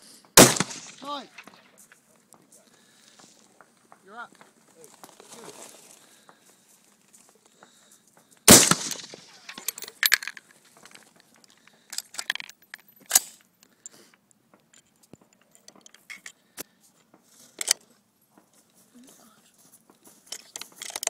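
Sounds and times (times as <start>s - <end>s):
rifle shot: 0.4s - 1.6s, 8.5s - 9.7s
metallic clicks of rifle bolt: 8.6s - 16.4s, 17.6s - 17.9s, 20.3s - 21.0s.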